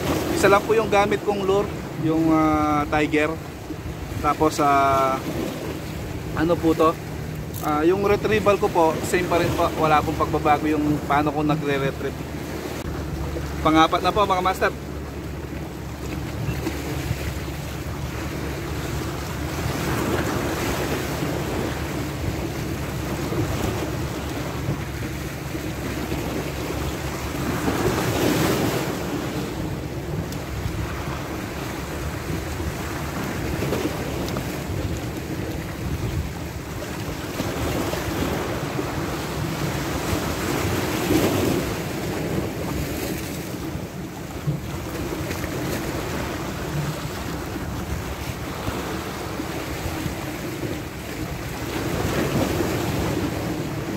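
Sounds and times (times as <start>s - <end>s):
waves breaking against rocks: 0.0s - 53.9s
wind buffeting microphone: 15.3s - 53.9s.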